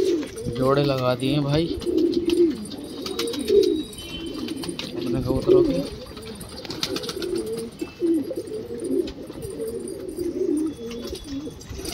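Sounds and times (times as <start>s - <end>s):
pigeons cooing: 0.0s - 11.9s.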